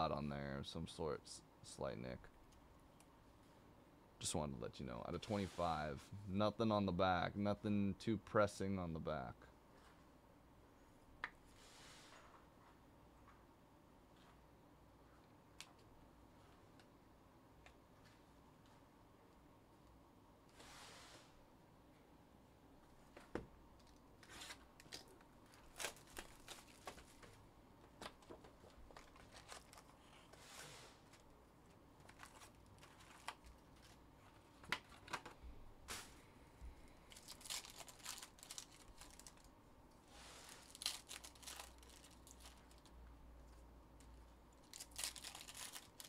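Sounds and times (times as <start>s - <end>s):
wrappers tearing and crinkling: 24.3s - 27.4s, 28.9s - 30.2s, 32.0s - 34.0s, 37.1s - 39.5s, 40.3s - 42.9s, 44.6s - 46.0s.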